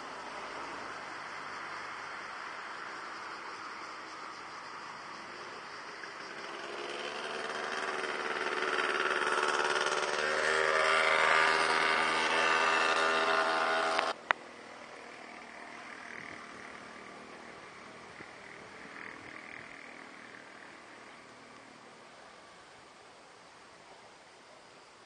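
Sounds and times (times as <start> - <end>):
motor engine running: 6.0 - 14.2.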